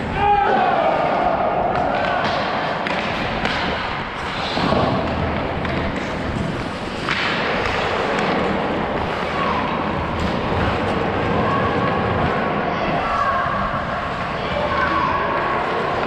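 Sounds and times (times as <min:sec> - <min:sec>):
sticks and puck clacking: 0:00.5 - 0:16.0
skate blades scraping ice: 0:02.0 - 0:16.0.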